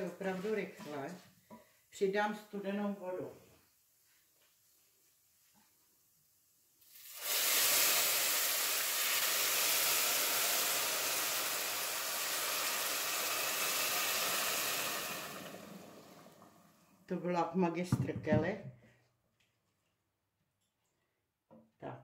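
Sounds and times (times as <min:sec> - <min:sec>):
loud sizzling hiss of steam: 0:06.8 - 0:16.7.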